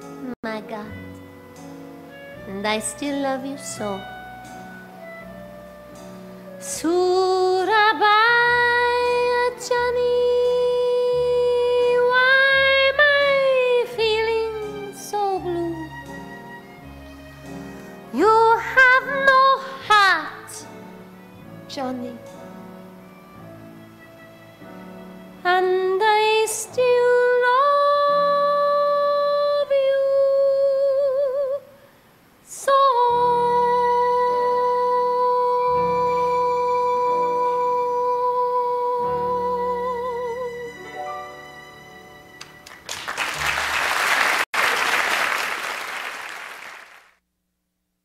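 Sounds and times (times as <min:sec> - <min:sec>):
woman singing: 0:02.5 - 0:04.2, 0:06.6 - 0:16.0, 0:18.1 - 0:20.8, 0:21.7 - 0:22.3, 0:25.4 - 0:31.7, 0:32.5 - 0:40.8
audience applause: 0:42.4 - 0:47.1.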